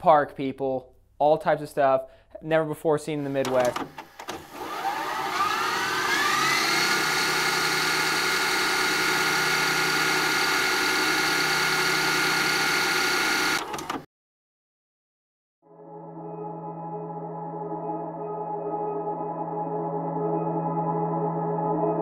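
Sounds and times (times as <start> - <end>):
whirring fast-forward sound effect: 3.8 - 14.0.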